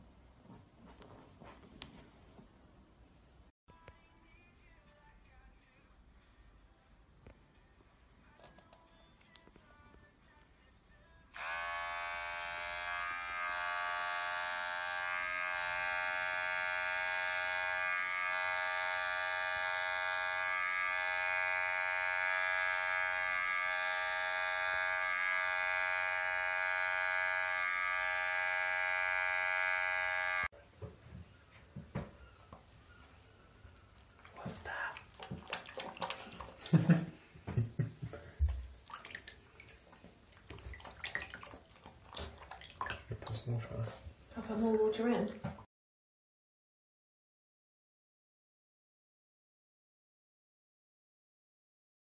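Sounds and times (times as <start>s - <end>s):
electric hair clipper buzzing: 11.3s - 30.5s.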